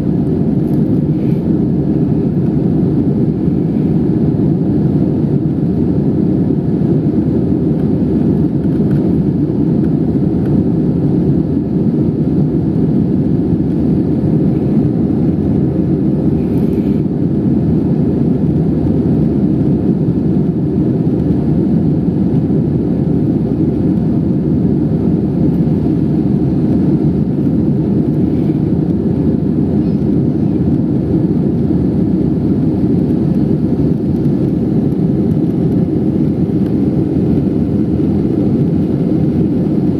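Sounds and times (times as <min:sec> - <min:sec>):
airliner cabin engine rumble: 0:00.0 - 0:39.9.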